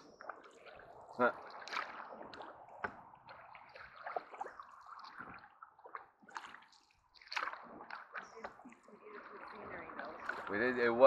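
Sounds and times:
paddles splashing in water: 0.0 - 11.0
water drips and gurgles: 0.0 - 11.0.

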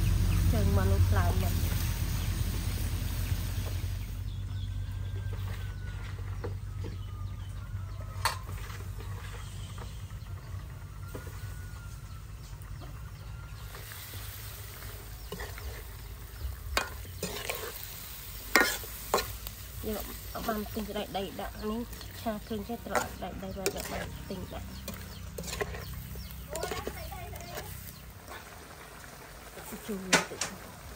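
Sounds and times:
food sizzling in oil: 0.0 - 4.4, 13.3 - 30.9.

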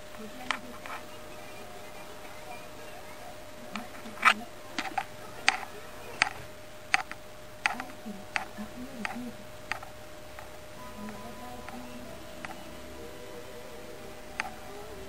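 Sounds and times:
faint hum: 0.0 - 15.0
light sharp ticks: 3.8 - 12.7
low wavering tune: 10.6 - 15.0.

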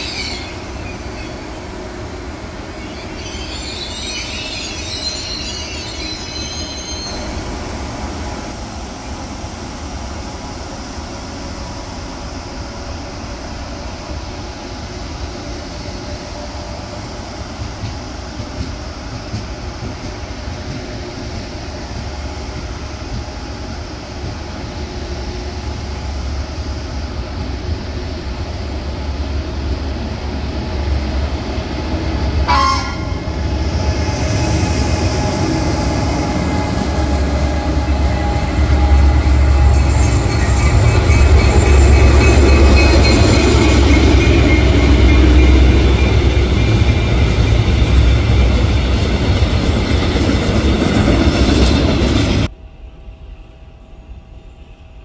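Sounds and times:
freight train rumbling past: 0.0 - 55.0
train running noise: 0.0 - 55.0
train horn toot: 32.4 - 33.4.

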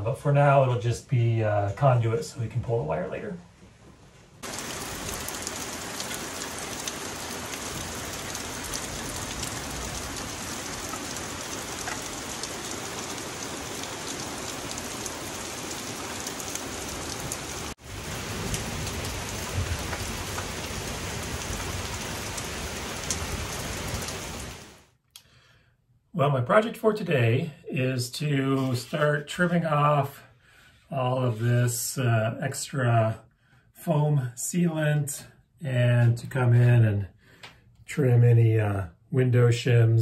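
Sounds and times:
rain on forest and roof: 4.4 - 24.9.

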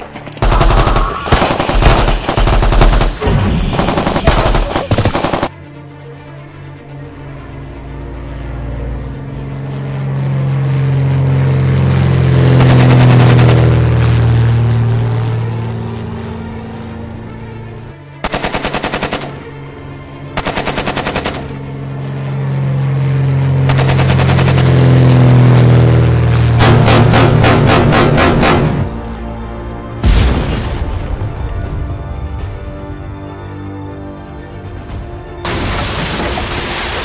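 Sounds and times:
propeller plane engine droning: 0.0 - 30.2
rapid machine-gun fire: 0.4 - 5.5, 12.4 - 13.8, 18.2 - 19.4, 20.4 - 21.6, 23.7 - 25.0, 26.6 - 28.9.

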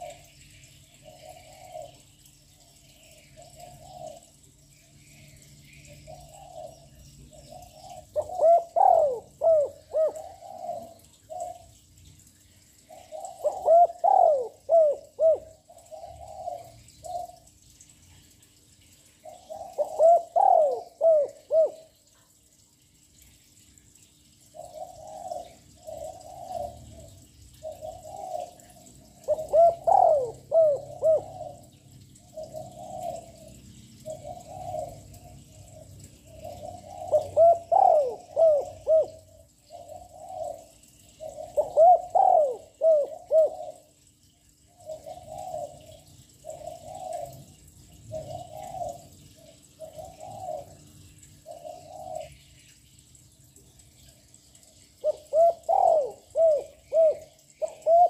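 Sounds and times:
dove cooing: 1.0 - 2.1, 3.4 - 4.4, 6.1 - 11.8, 12.7 - 17.5, 19.2 - 22.0, 24.5 - 44.1, 44.8 - 52.4, 54.5 - 58.0.

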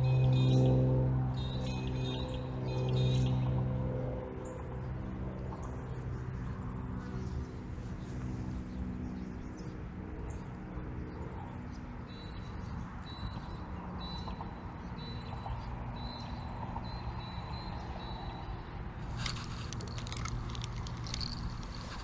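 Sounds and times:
steady low rumble: 0.0 - 11.7, 18.7 - 22.0
sharp clicks: 19.0 - 22.0.

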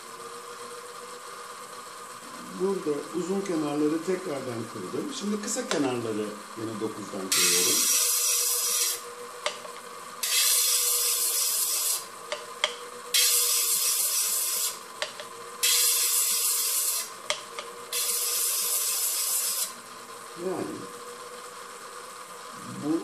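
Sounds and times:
motor hum: 0.0 - 23.0
gemstone grinding on spinning lap: 7.4 - 19.8.

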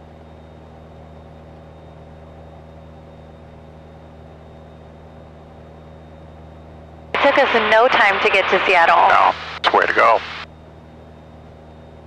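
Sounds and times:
light aircraft engine drone: 0.0 - 12.0.

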